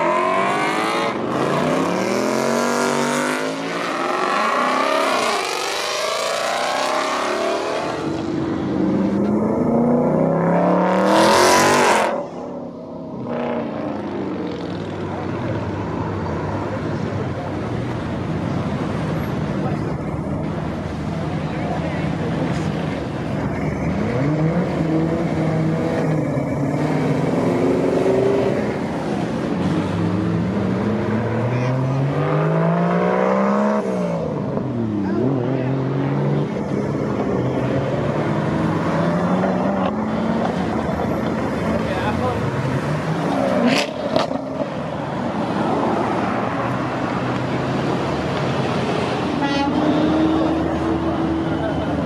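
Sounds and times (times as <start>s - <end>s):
cars driving past: 0.0s - 52.0s
car horn toot: 49.4s - 50.1s.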